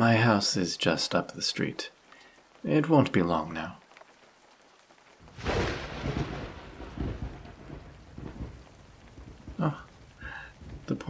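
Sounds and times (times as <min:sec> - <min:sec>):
rain: 0:00.0 - 0:11.0
thunder crack and rumble: 0:05.2 - 0:11.0.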